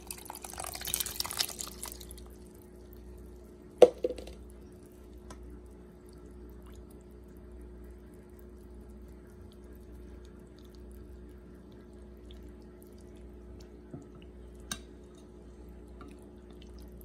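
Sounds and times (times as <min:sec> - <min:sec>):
liquid sloshing and dripping: 0:00.0 - 0:03.1.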